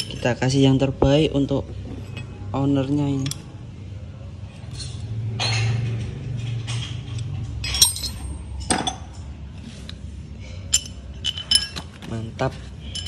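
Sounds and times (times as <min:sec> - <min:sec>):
metal tools clinking: 0:00.0 - 0:00.7, 0:04.5 - 0:09.4, 0:10.4 - 0:13.0
low steady hum: 0:00.0 - 0:13.0.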